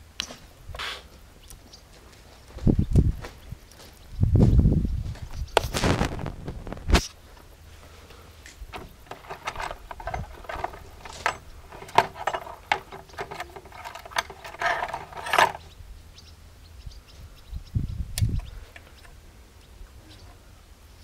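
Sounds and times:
metallic clicks and rattles: 8.6 - 15.8, 18.2 - 19.2.

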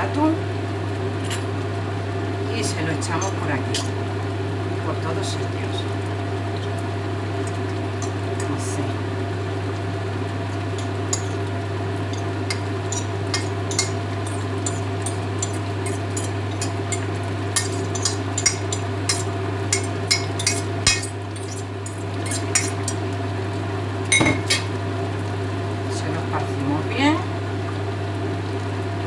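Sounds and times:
steady low hum: 0.0 - 29.0
fork clattering on plate: 10.8 - 11.4, 12.1 - 23.0
fork scraping on china plate: 12.5 - 23.0.

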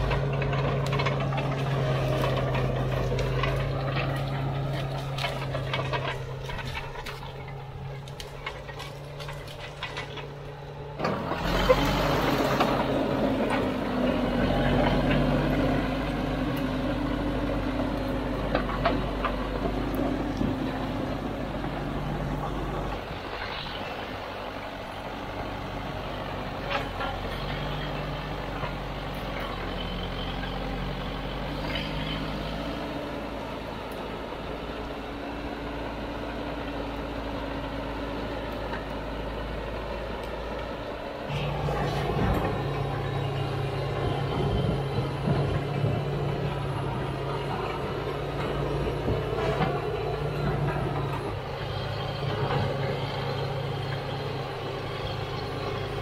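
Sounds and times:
sharp knocks and cracks: 0.0 - 10.4
bulldozer diesel engine under load: 0.0 - 56.0.

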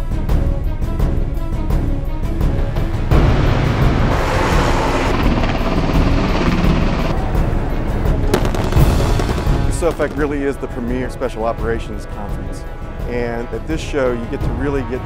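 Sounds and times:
background music with steady beat: 0.0 - 15.0
helicopter flying past: 3.6 - 10.8.

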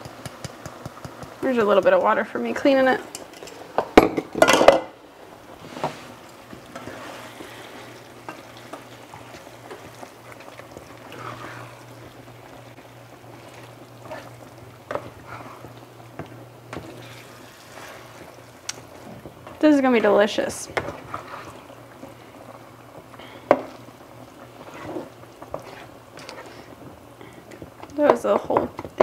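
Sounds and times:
meat sizzling in a skillet: 0.0 - 29.0
kitchenware clattering: 3.2 - 5.0
spatula scraping a skillet: 5.6 - 12.1, 13.4 - 15.8, 16.7 - 18.3, 20.8 - 21.7, 24.4 - 26.7.

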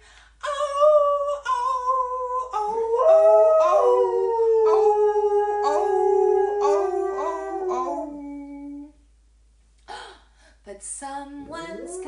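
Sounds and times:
woman singing ooh: 0.4 - 7.5, 11.0 - 12.0
dog howling: 0.6 - 8.9.

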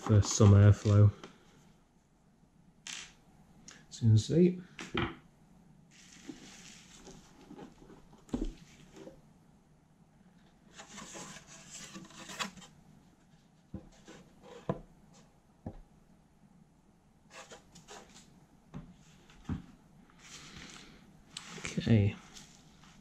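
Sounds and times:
wood rubbing and sliding: 10.7 - 15.3.

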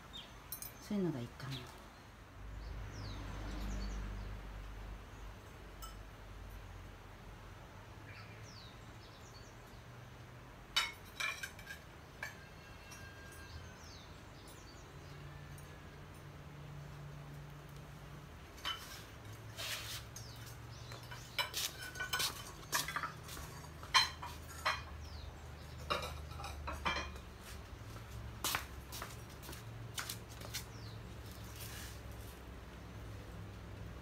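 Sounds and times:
ceramic plates and cups clinking: 10.8 - 13.6, 20.7 - 27.5.

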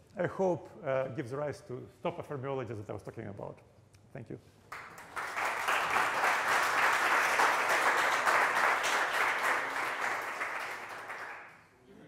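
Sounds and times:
audience applauding: 4.7 - 11.7.

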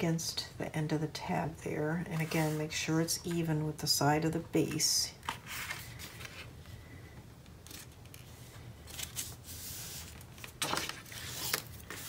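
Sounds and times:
paper rustling and scraping: 2.2 - 2.7, 5.2 - 6.5, 7.6 - 12.0.

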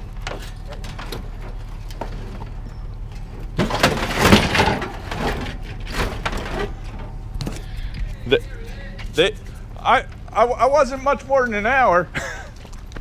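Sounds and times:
metal unit scraping and clattering: 0.0 - 10.2.

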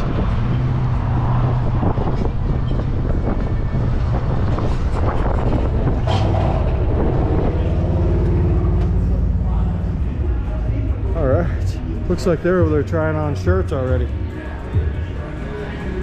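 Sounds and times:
wind on microphone: 0.0 - 8.6.

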